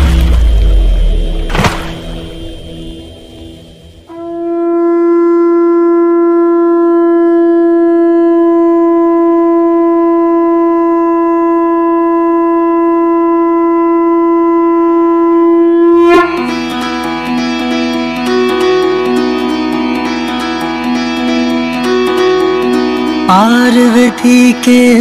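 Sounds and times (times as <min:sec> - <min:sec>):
conch shell blown: 0:03.3 - 0:23.2.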